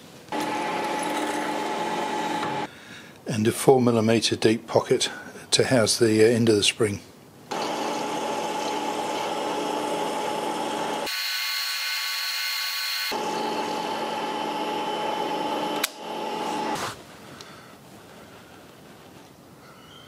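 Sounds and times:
milling machine whine: 0:00.3 - 0:02.7, 0:07.5 - 0:16.8.

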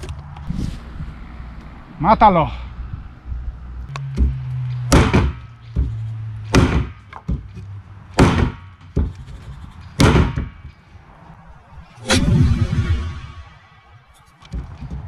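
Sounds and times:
machete chopping wood: 0:04.0 - 0:07.4, 0:08.2 - 0:09.2, 0:10.0 - 0:10.6.

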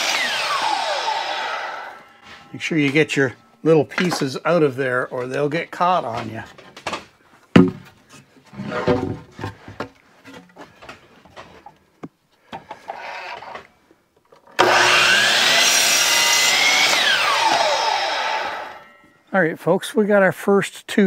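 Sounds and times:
saw cutting wood: 0:00.0 - 0:03.2, 0:14.6 - 0:19.0
miter saw whining: 0:00.0 - 0:04.1, 0:14.6 - 0:19.1
wooden boards knocking: 0:07.6 - 0:08.0.

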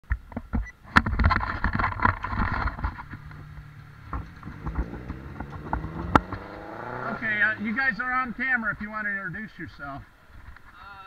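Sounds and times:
hum of motor traffic: 0:00.0 - 0:10.8
pedicab rattling over pavement: 0:01.0 - 0:07.7.

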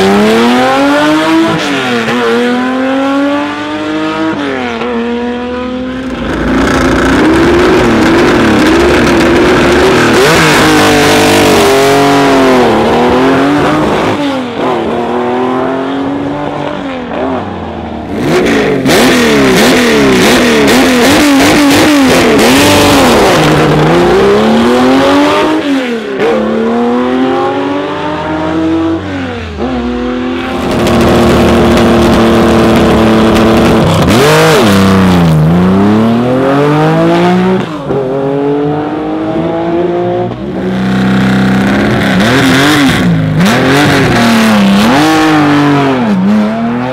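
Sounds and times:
rally car engines accelerating: 0:00.0 - 0:46.9.

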